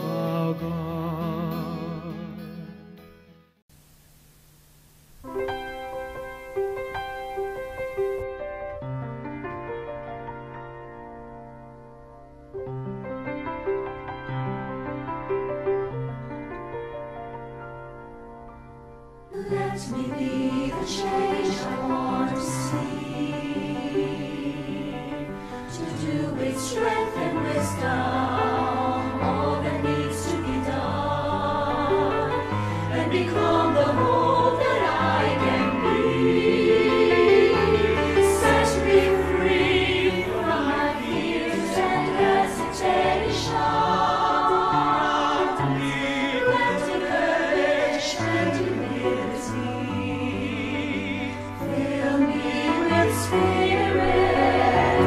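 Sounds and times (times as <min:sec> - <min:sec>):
choir singing: 0:19.3 - 0:55.0.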